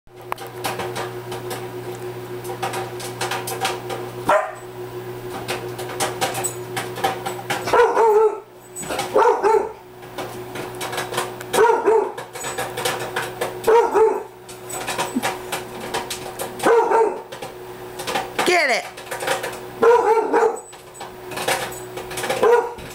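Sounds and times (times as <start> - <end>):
microwave oven hum: 0.1 - 22.9
popcorn popping: 0.1 - 22.9
dog barking: 4.3 - 4.7, 7.6 - 8.5, 9.1 - 9.8, 11.5 - 12.2, 13.6 - 14.3, 16.6 - 17.3, 19.8 - 20.7, 22.4 - 22.8.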